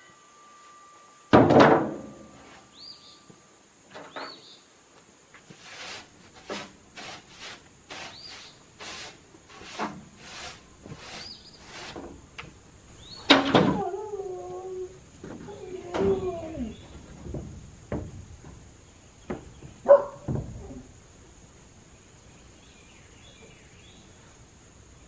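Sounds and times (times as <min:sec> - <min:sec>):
bird chirping: 0:02.7 - 0:03.3, 0:04.0 - 0:04.7, 0:11.1 - 0:11.8, 0:12.9 - 0:13.3, 0:22.0 - 0:24.3
heavy wooden thunk: 0:17.2 - 0:18.6, 0:19.2 - 0:20.6
wooden boards knocking: 0:17.2 - 0:18.6.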